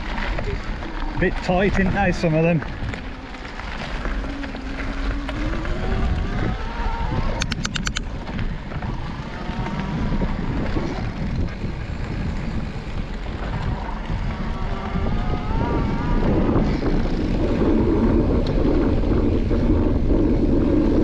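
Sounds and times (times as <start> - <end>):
bike tyres rumbling on gravel: 0.0 - 21.0
wind noise on microphone: 0.0 - 21.0
sharp clicks: 7.4 - 8.1.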